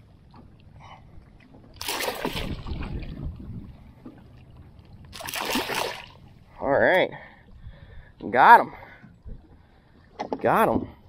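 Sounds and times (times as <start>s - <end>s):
fish splashing at surface: 1.8s - 3.0s, 5.1s - 6.2s.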